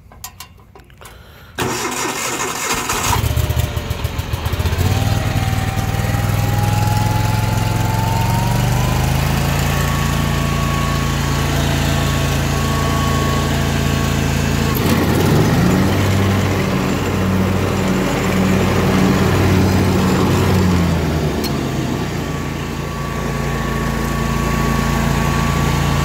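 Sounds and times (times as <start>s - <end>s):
mower engine idling: 0.0s - 26.0s
starter cranking: 0.1s - 3.2s.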